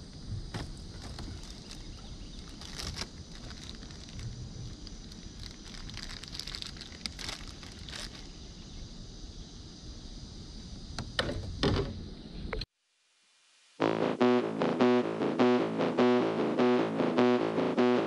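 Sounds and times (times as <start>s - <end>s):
river hiss: 0.0s - 12.6s.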